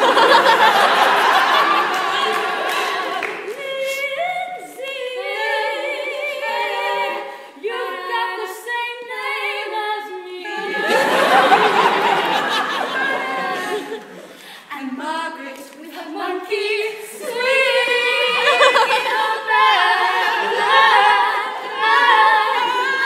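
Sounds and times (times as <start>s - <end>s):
women singing a cappella harmony: 2.0s - 23.0s
mixed voices: 10.5s - 23.0s.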